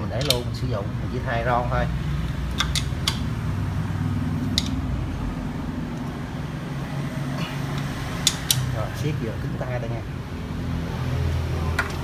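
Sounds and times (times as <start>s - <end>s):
steady low hum: 0.0s - 11.8s
hand tool clicking: 0.2s - 0.5s, 2.2s - 3.3s, 4.4s - 4.8s, 7.7s - 8.7s.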